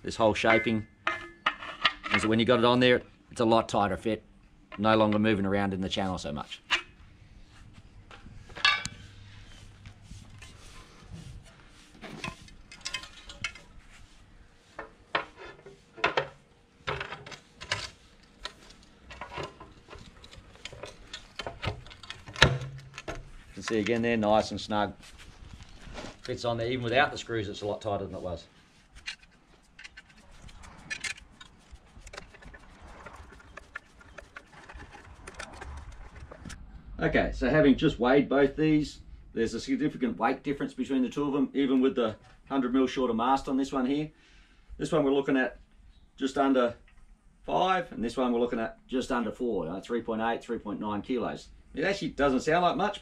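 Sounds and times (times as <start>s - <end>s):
parts scraping: 0.2s - 2.6s, 6.5s - 36.7s
hydrofoil parts clicking and knocking: 12.0s - 13.7s, 14.8s - 24.6s, 29.0s - 36.6s
foil parts being handled: 28.8s - 36.6s.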